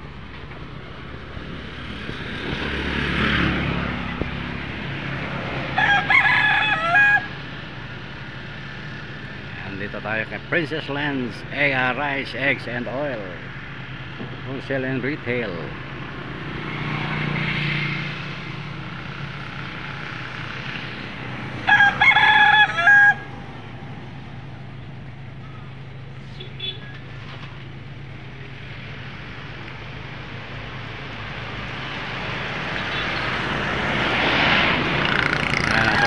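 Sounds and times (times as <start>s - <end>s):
passing traffic: 0.0s - 36.0s
rooster crowing: 5.7s - 7.4s, 21.6s - 23.5s.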